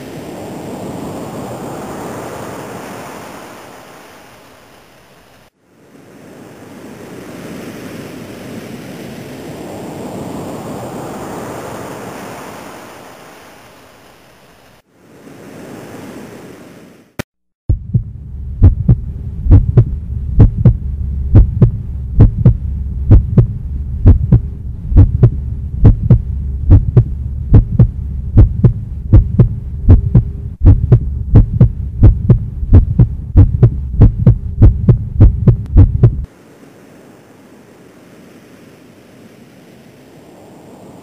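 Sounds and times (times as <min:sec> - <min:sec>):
heartbeat-like thumps: 0:17.7 - 0:36.3
low droning hum: 0:17.7 - 0:36.3.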